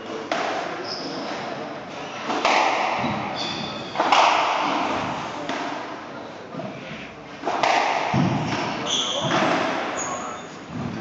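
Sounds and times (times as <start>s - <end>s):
squash ball thudding on walls: 2.3s - 5.9s, 7.4s - 10.0s
shoes squeaking on wooden floor: 3.0s - 4.0s, 8.4s - 10.7s.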